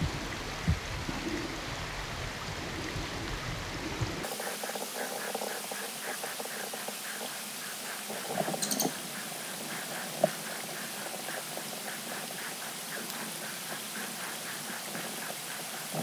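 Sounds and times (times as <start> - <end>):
chorus of small animals chirping: 4.3 - 16.0.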